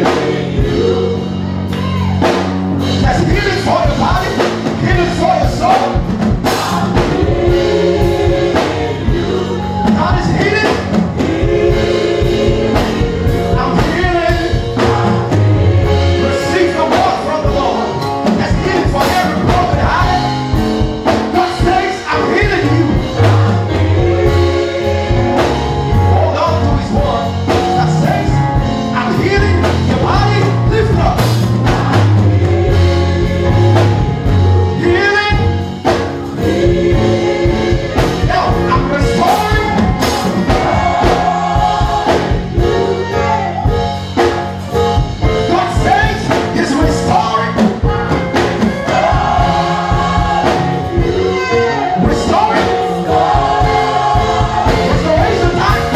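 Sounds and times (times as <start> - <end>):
gospel choir singing: 0.0 - 55.9
keyboard accompaniment: 0.0 - 55.9
steady beat: 0.0 - 55.9.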